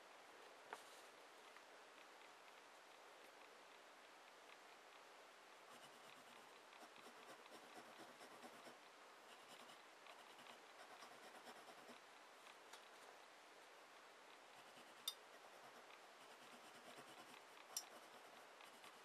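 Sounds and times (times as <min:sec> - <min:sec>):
pencil scratching on paper: 0:05.7 - 0:12.0, 0:14.6 - 0:19.0.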